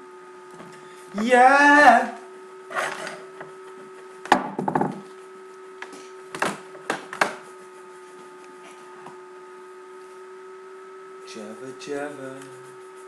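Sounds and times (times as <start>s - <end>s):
steady electrical hum: 0.0s - 13.0s
knocks on wooden surface: 4.3s - 5.0s.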